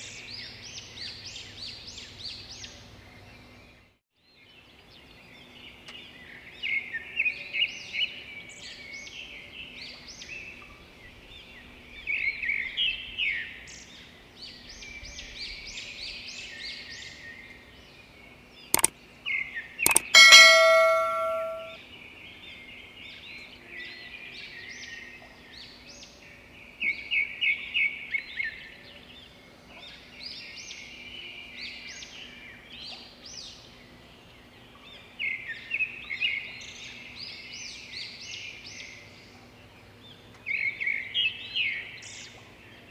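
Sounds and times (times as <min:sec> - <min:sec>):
metallic clang ringing: 0:19.9 - 0:21.8
sharp clicks: 0:19.9 - 0:21.8.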